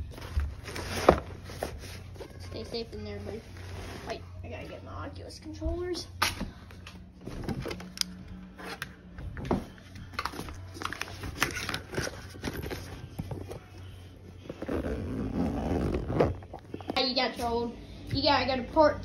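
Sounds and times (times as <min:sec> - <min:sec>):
fabric rustling: 0:12.0 - 0:17.6.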